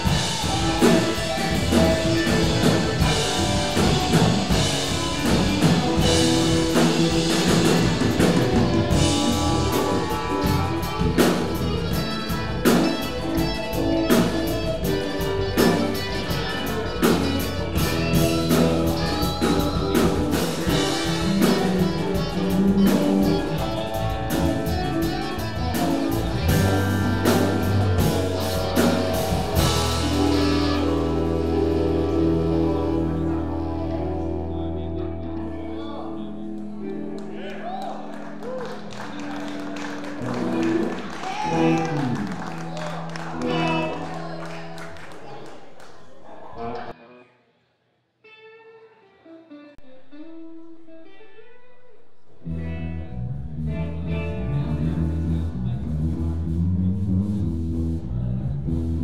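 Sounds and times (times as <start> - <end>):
drum kit beat: 0.0 - 33.1
electric bass: 0.0 - 45.0, 52.4 - 59.0
electric guitars: 0.0 - 47.0, 48.2 - 59.0
keyboard: 0.0 - 47.0.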